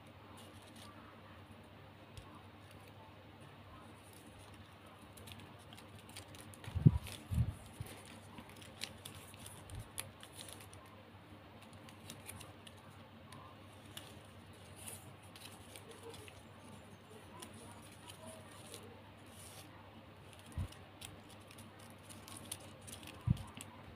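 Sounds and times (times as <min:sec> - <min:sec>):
ribbon crinkling and clicking: 0:00.4 - 0:01.0, 0:03.8 - 0:11.0, 0:11.6 - 0:23.9.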